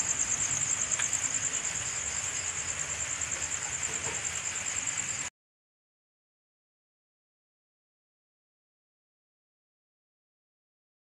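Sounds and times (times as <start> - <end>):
insects chirping: 0.0 - 5.3.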